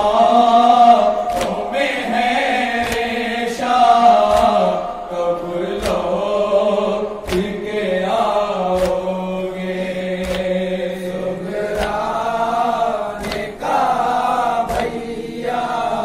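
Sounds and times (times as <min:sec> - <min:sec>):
men chanting a lament: 0:00.0 - 0:16.0
chest-beating slaps: 0:01.2 - 0:05.0, 0:05.6 - 0:06.5, 0:07.1 - 0:07.8, 0:08.7 - 0:09.3, 0:10.1 - 0:10.7, 0:11.5 - 0:15.1.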